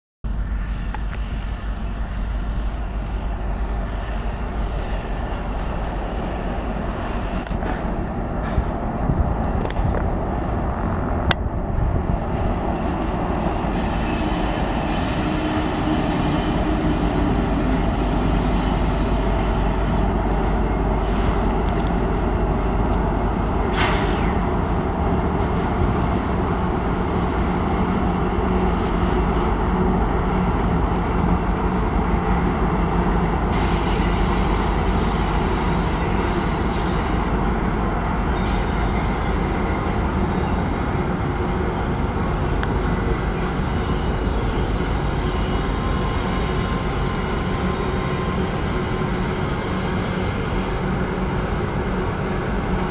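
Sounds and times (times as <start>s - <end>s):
locomotive engines droning: 0.3s - 52.9s.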